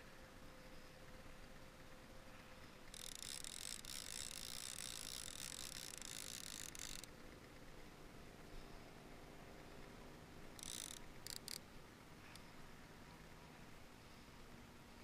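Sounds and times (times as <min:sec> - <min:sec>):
fishing reel buzzing: 0:02.8 - 0:07.1, 0:10.6 - 0:11.6.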